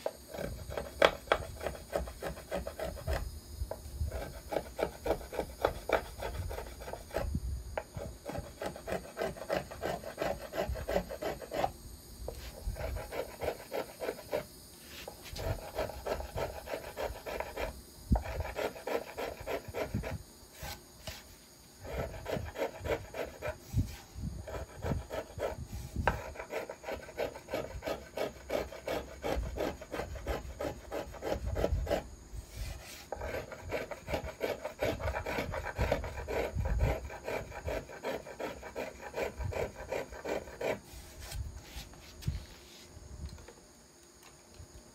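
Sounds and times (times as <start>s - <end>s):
plane shaving wood: 8.0s - 11.7s, 24.4s - 32.0s, 32.6s - 41.1s.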